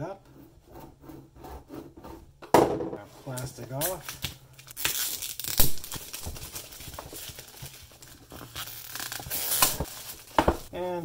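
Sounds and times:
plastic wrap crinkling: 0:03.8 - 0:10.7
plastic wrap ripping: 0:03.8 - 0:10.7.

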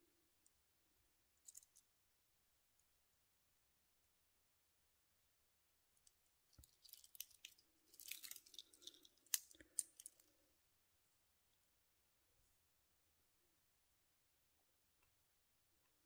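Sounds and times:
metal watch bracelet rattling: 0:06.6 - 0:10.3.

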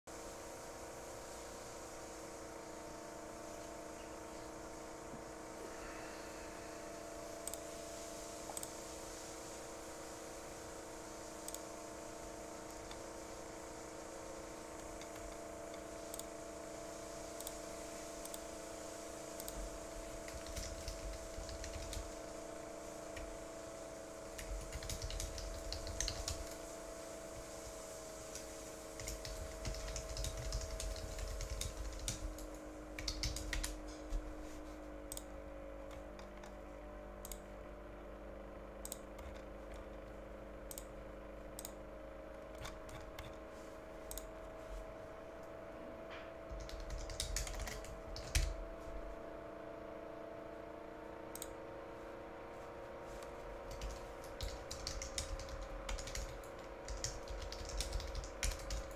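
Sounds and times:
faint steady hum: 0:00.1 - 0:58.9
computer keyboard typing: 0:14.8 - 0:16.4, 0:19.4 - 0:22.3, 0:24.3 - 0:26.6, 0:28.3 - 0:33.9, 0:38.8 - 0:39.8, 0:42.6 - 0:43.4, 0:46.5 - 0:48.6, 0:53.7 - 0:58.9.

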